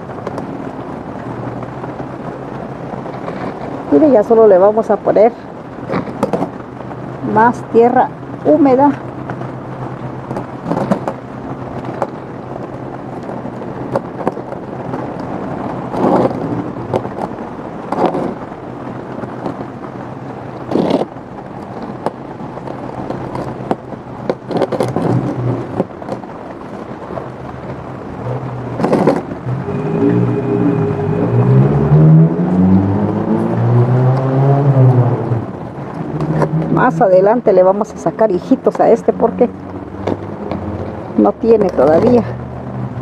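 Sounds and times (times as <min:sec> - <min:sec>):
soil and plant pot rustling: 0:02.9 - 0:29.5
low hum: 0:24.9 - 0:36.9.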